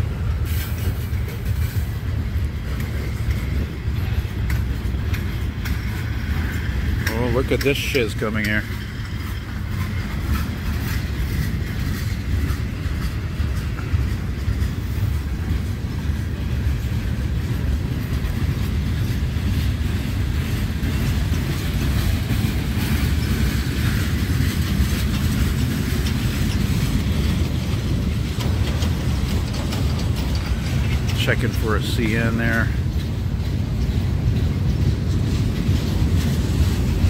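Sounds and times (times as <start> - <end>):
freight train cars rolling past: 0.0 - 37.0.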